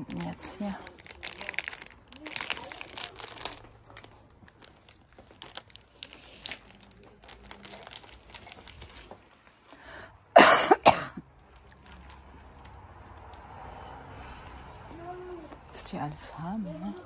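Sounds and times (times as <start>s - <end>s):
woman coughing: 10.4s - 11.2s.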